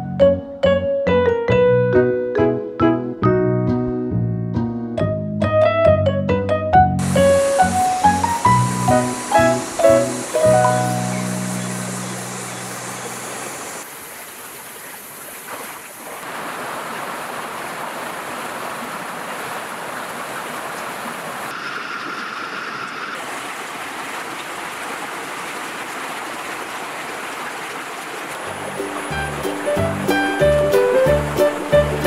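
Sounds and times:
creek water flowing: 7.0 - 32.0.

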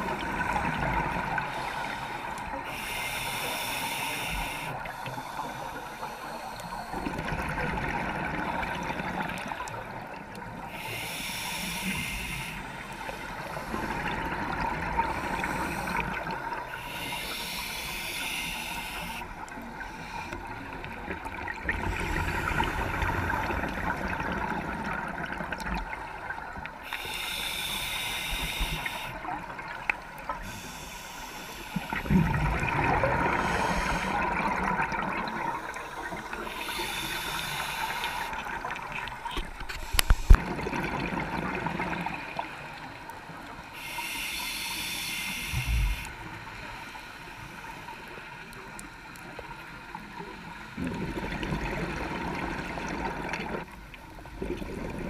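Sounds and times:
regulator inhalation hiss: 1.4 - 7.1, 10.6 - 14.2, 15.2 - 20.7, 26.8 - 29.3, 30.3 - 32.2, 33.1 - 34.4, 35.3 - 38.5, 42.4 - 48.6
gurgling exhalation bubbles: 32.0 - 35.6, 39.4 - 42.2, 50.8 - 53.7, 54.3 - 55.0.

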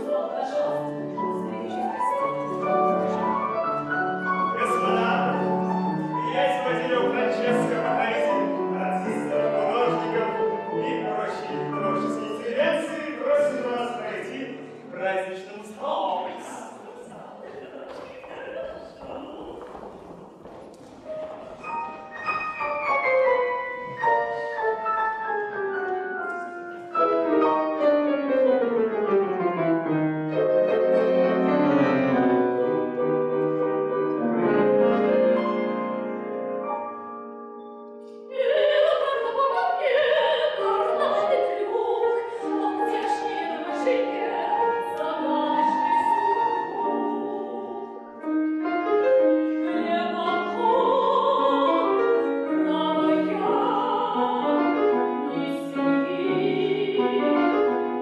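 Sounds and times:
grand piano playing: 0.0 - 17.4, 18.5 - 58.0
woman singing operatically: 38.3 - 48.1, 49.6 - 57.4.

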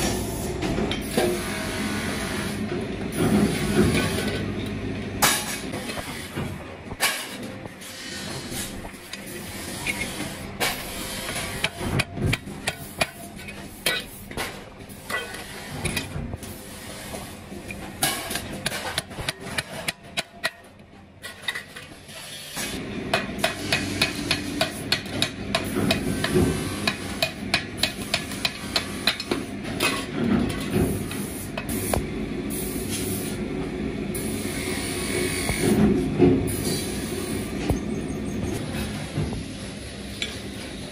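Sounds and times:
hammer striking wooden handles: 23.1 - 29.4.

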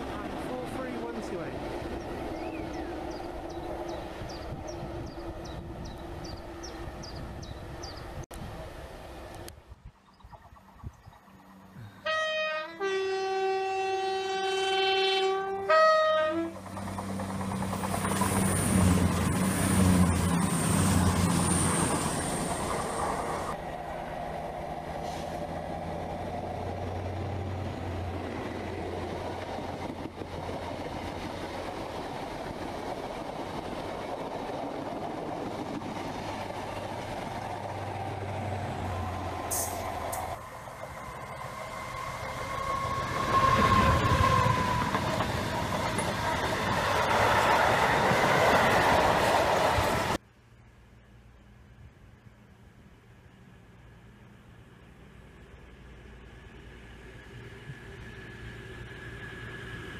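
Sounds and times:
train passing rumble: 0.0 - 59.9
train passing with high whine: 0.0 - 59.9
two-tone train horn: 12.0 - 16.6.

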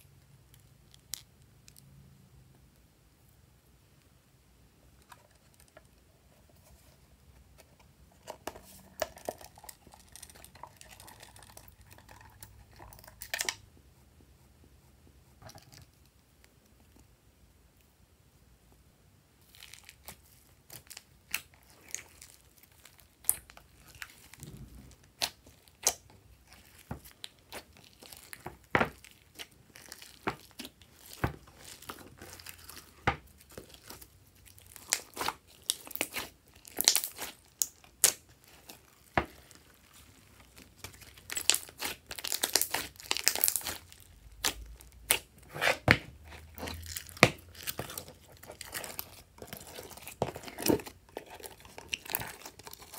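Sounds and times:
slime sticky pops and crackles: 34.8 - 38.2, 40.9 - 45.3.

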